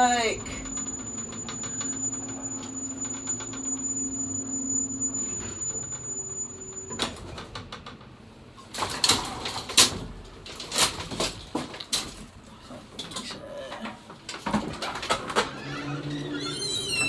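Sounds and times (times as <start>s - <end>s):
metal gate clanking: 0.0s - 7.6s
elevator hum and whine: 0.0s - 8.7s, 14.8s - 17.0s.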